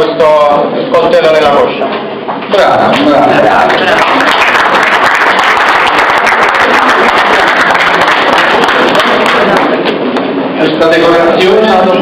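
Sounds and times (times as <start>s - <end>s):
crowd applauding: 2.9s - 10.0s.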